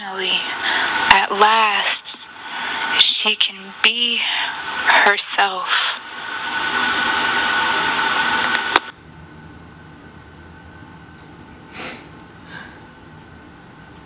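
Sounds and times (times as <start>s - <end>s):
loud steady hiss: 0.0s - 14.0s
woman sniffing while crying: 11.7s - 12.8s.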